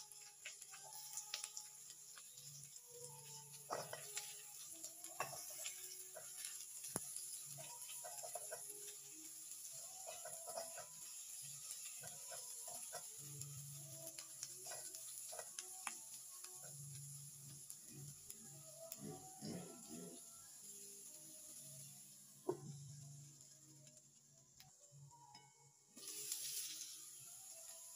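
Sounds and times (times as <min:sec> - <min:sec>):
faint sizzle: 0:00.0 - 0:27.9
spatula tapping and scraping pan: 0:03.7 - 0:04.4, 0:05.0 - 0:08.8, 0:10.0 - 0:13.2.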